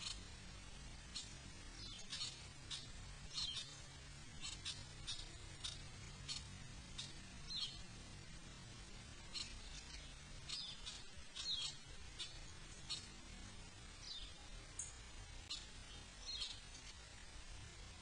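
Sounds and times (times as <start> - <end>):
faint low hum: 0.0 - 18.0
short high chirping calls: 1.1 - 3.8, 4.4 - 7.8, 9.3 - 13.1.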